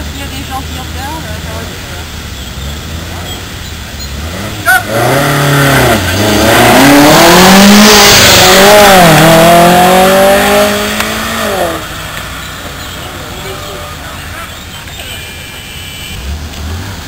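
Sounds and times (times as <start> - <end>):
rally car accelerating hard: 1.2 - 12.4.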